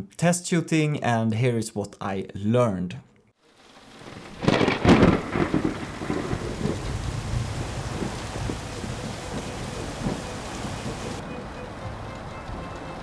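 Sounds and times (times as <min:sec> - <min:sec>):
steady rain: 0:03.4 - 0:13.0
thunder rumbling: 0:03.8 - 0:13.0.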